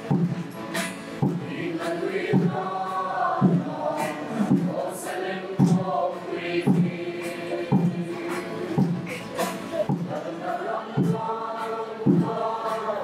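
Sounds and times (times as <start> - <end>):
low drumbeat: 0.0 - 0.5, 1.2 - 5.0, 5.6 - 6.0, 6.6 - 7.1, 7.7 - 11.3, 12.0 - 12.5
choir singing a slow hymn: 1.2 - 13.0.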